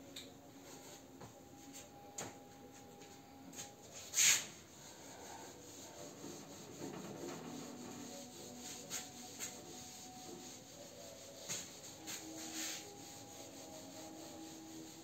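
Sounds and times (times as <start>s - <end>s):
eraser rubbing on whiteboard: 4.0s - 15.0s.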